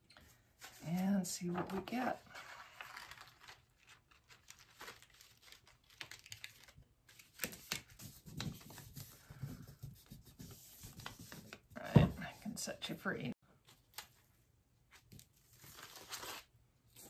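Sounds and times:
paper rustling and crinkling: 0:00.6 - 0:11.8, 0:14.9 - 0:17.0.

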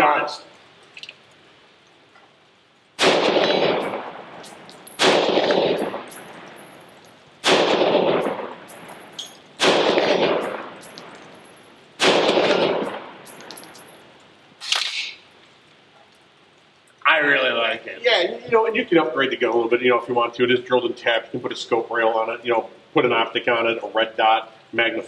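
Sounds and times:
rifle shots with echo: 0:03.0 - 0:06.8, 0:07.4 - 0:13.3.

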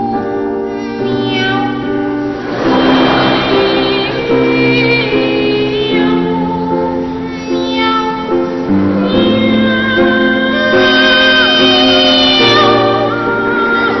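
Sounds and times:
piano accompaniment: 0:00.0 - 0:14.0.

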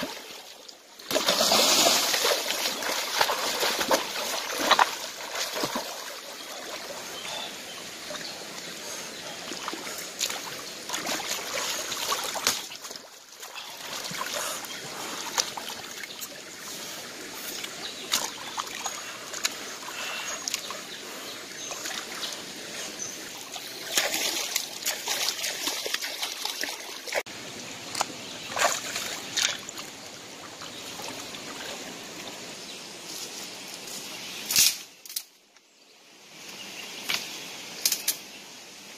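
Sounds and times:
splashing in water: 0:00.0 - 0:07.5, 0:09.4 - 0:16.4, 0:23.3 - 0:27.3, 0:27.9 - 0:29.9
stream trickling over rocks: 0:00.0 - 0:33.1
sharp loud splash: 0:01.1 - 0:05.9.

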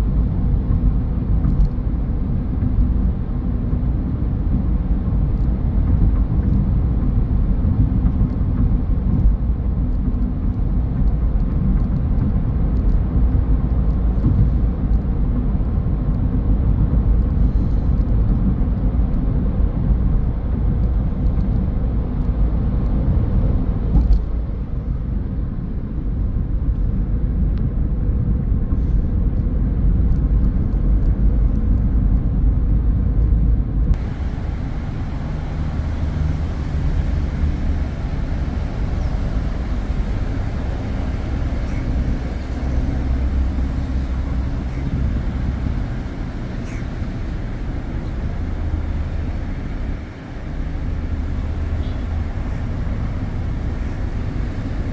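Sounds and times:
car tyre and engine rumble: 0:00.0 - 0:54.9.

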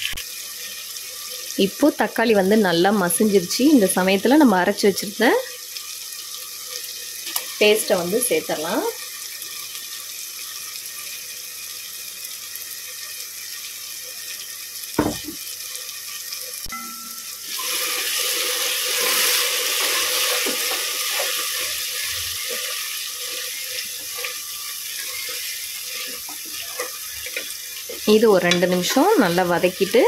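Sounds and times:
masala sizzling in pot: 0:00.0 - 0:30.0
knock: 0:15.0 - 0:15.4.

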